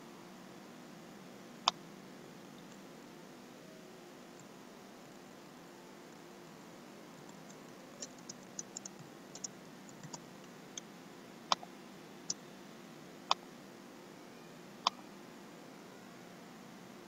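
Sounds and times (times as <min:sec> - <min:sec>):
faint steady hiss: 0:00.0 - 0:17.0
keyboard typing: 0:07.2 - 0:10.8.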